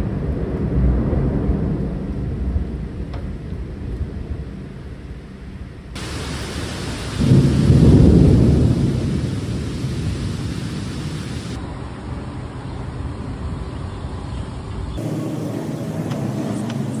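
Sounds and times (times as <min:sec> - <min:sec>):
thunder rumbling: 0:00.0 - 0:11.6
outdoor road ambience: 0:00.0 - 0:17.0
heavy rain hissing: 0:06.0 - 0:11.6, 0:15.0 - 0:17.0.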